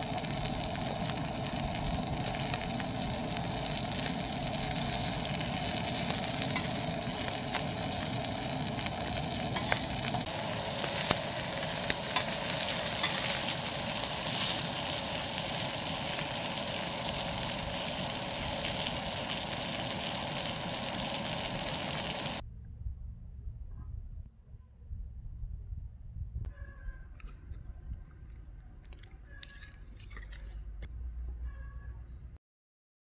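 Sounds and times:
seafood sizzling in hot oil: 0:00.0 - 0:22.4.

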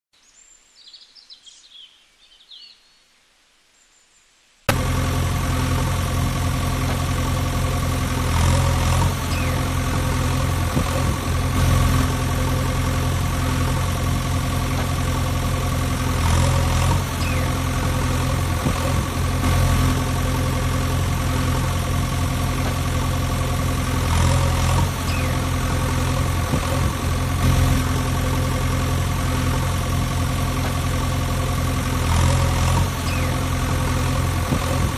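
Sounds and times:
faint bird chirps: 0:00.2 - 0:04.6, 0:09.2 - 0:09.7, 0:17.1 - 0:17.6, 0:25.0 - 0:25.5, 0:33.0 - 0:33.5
heavy machine engine idling: 0:04.7 - 0:34.9.

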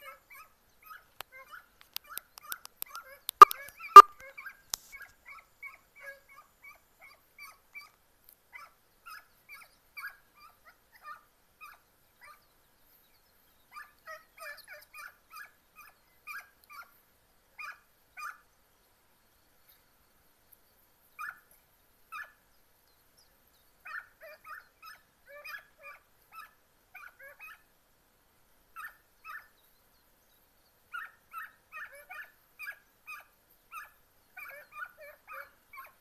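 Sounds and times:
hounds yipping: 0:00.0 - 0:08.0, 0:17.6 - 0:18.4, 0:23.8 - 0:27.7, 0:28.8 - 0:29.6, 0:30.9 - 0:36.0.

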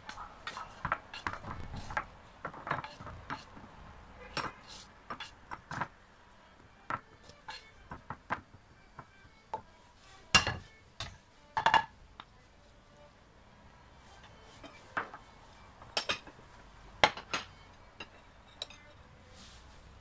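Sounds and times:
spatula scraping and knocking pan: 0:00.1 - 0:03.6, 0:04.2 - 0:06.0.

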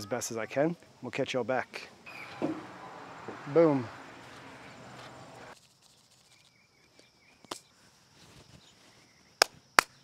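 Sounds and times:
faint insect drone: 0:00.0 - 0:10.0
soft chirps: 0:02.1 - 0:07.5.

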